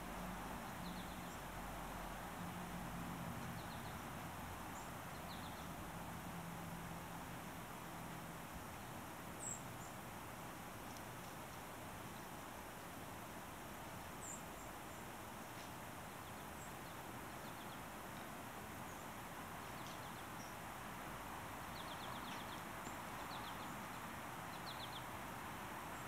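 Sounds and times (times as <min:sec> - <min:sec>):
outdoor ambient hiss: 0:00.0 - 0:26.0.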